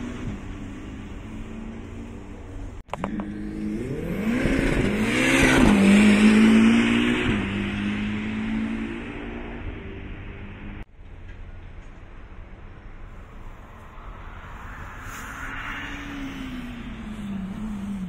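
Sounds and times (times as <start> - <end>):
race car engine passing: 13.2 - 18.0.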